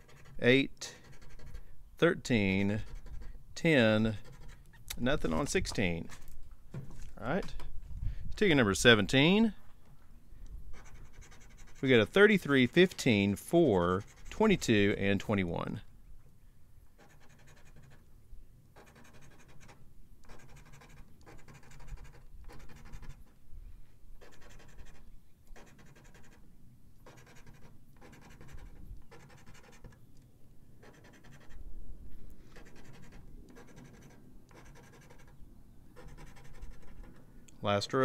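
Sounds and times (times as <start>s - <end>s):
coin scraping lottery ticket: 18.8s - 23.2s, 25.6s - 26.4s, 27.0s - 30.0s, 30.8s - 31.6s, 32.5s - 35.4s, 36.0s - 37.2s.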